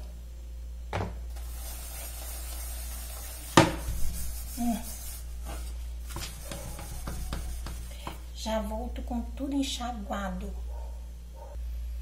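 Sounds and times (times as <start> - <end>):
sponge scrubbing pot: 1.4 - 8.3.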